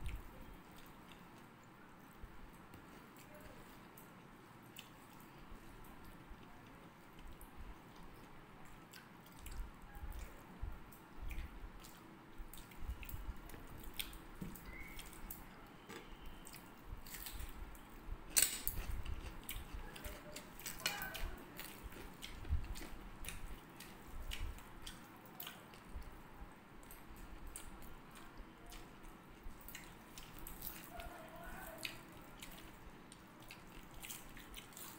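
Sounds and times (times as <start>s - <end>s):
people chewing: 0.0s - 34.9s
fingers mixing rice on plates: 18.5s - 25.9s.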